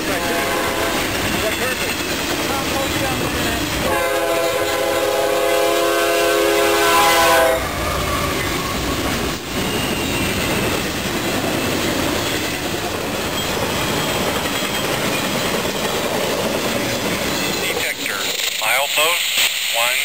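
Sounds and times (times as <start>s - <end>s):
train horn chord: 0.0s - 1.2s, 3.8s - 7.8s
freight train rumble and clatter: 0.0s - 20.0s.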